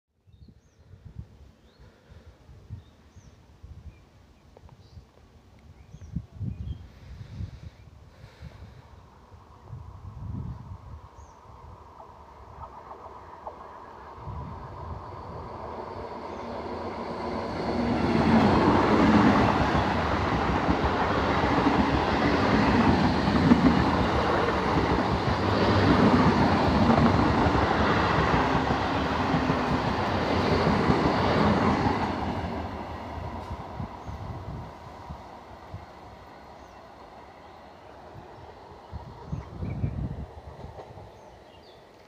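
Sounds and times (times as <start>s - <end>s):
train wheels rumbling over rails: 11.9s - 41.6s.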